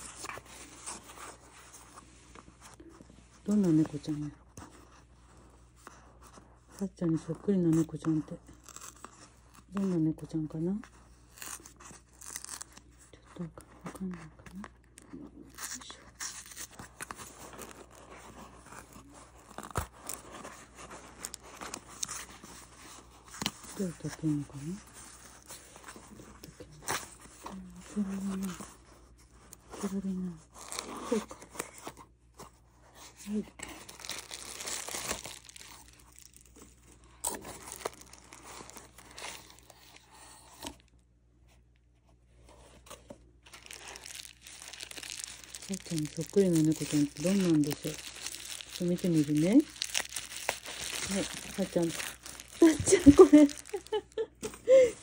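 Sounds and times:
cardboard crackling and scraping: 0.0s - 10.0s, 15.4s - 40.9s, 42.2s - 55.0s
bubble wrap and paper crinkling: 0.0s - 55.0s
sharp crackles of packing: 43.4s - 54.1s.

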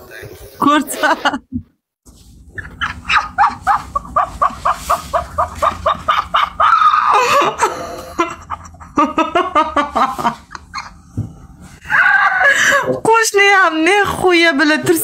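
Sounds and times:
woman laughing: 0.7s - 1.5s, 2.6s - 11.1s, 11.8s - 13.0s.

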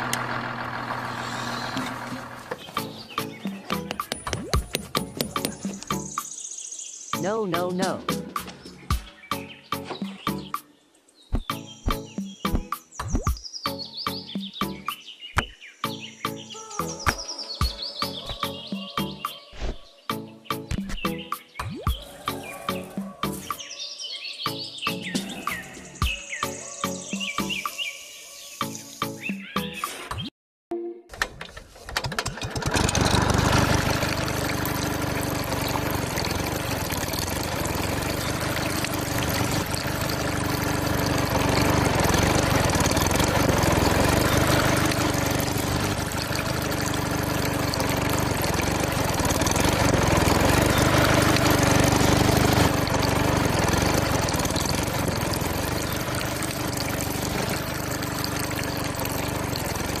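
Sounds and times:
small water pump motor: 0.0s - 5.9s, 32.0s - 60.0s
water splashing: 33.0s - 60.0s.

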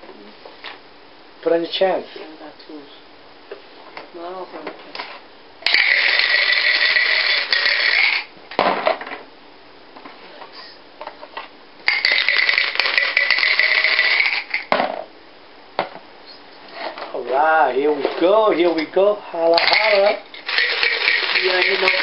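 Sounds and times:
dice clattering as rolled: 11.9s - 14.7s, 19.6s - 22.0s
dice rattling in plastic cup: 11.9s - 14.7s, 19.6s - 22.0s.

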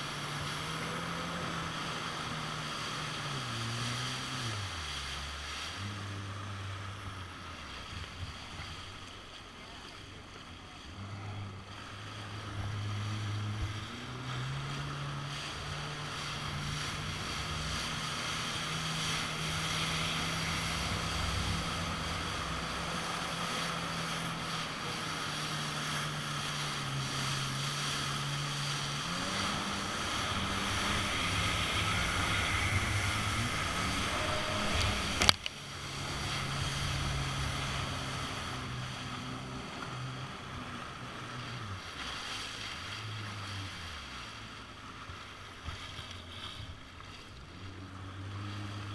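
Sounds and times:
watercraft engine under throttle: 0.0s - 48.9s
water spray: 14.4s - 39.6s
wind rushing: 29.0s - 38.8s.

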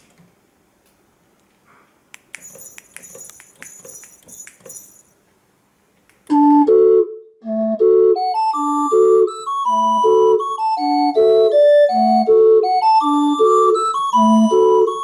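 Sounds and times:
light clicks and jingling: 2.4s - 5.1s
barrel organ playing a tune: 6.3s - 15.0s.

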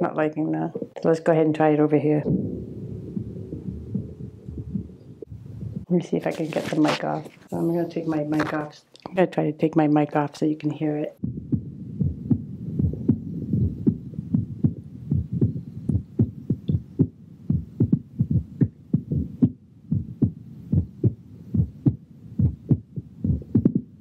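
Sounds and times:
faint hum: 0.6s - 8.7s, 11.0s - 24.0s
heartbeat thumps: 2.2s - 6.8s, 11.2s - 24.0s.

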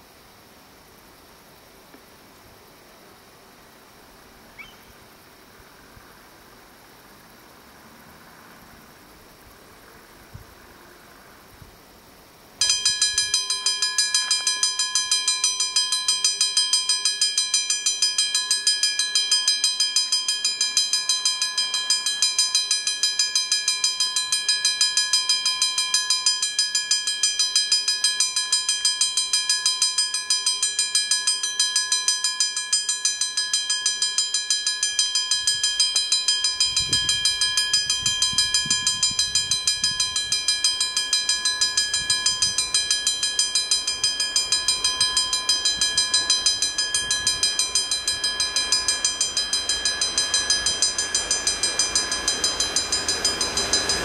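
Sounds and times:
level crossing bell ringing: 12.6s - 54.0s.

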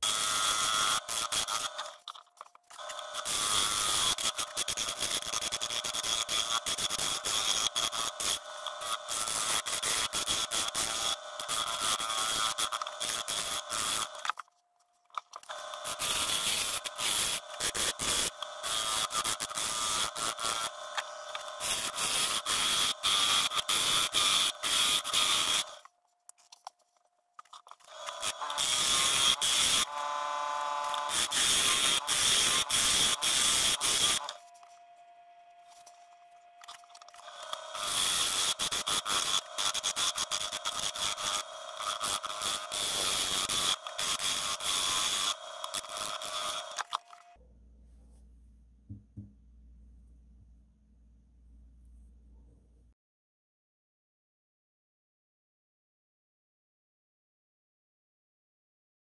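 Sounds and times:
lathe tool cutting wood clatter: 0.0s - 14.4s, 15.4s - 25.8s, 27.8s - 34.7s, 36.6s - 47.1s.

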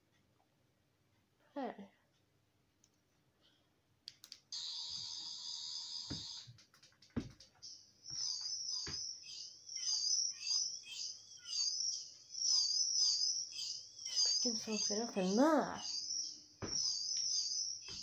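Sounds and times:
high electronic buzz: 4.6s - 6.5s, 8.1s - 18.0s
high electronic warble: 4.6s - 6.5s, 7.6s - 18.0s
clicks and thumps: 6.1s - 9.1s.

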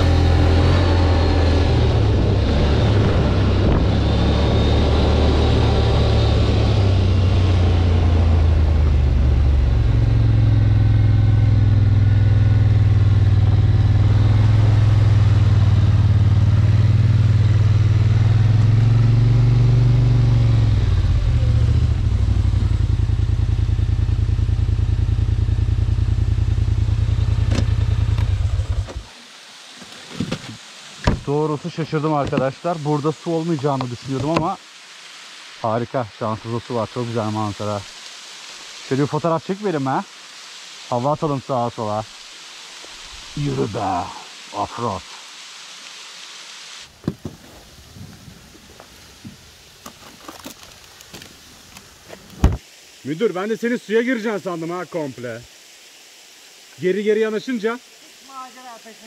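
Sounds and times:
atv engine running: 0.0s - 29.1s.

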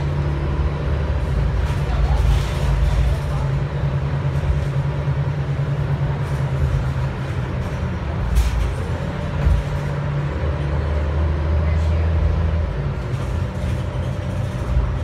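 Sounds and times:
bus engine drone: 0.0s - 15.0s
road noise: 0.0s - 15.0s.

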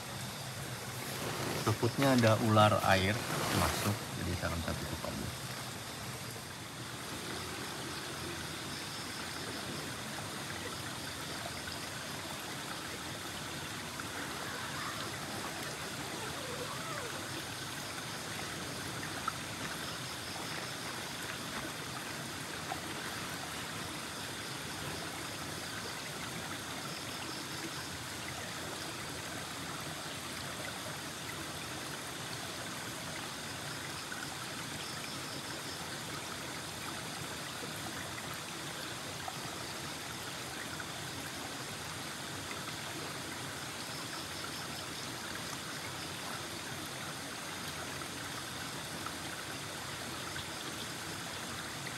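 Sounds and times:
river rushing over boulders: 0.0s - 7.6s, 12.2s - 20.1s.

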